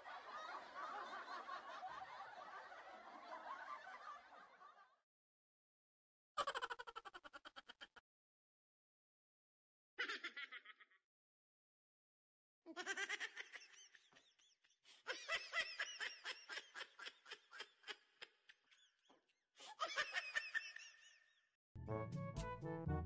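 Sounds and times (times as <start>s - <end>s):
high-pitched giggling: 6.4s - 8.0s.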